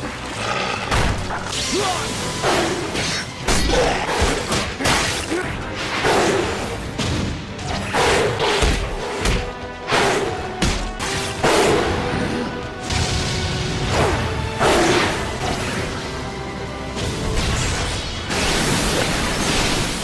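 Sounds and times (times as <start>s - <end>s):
dramatic background music: 0.0s - 20.0s.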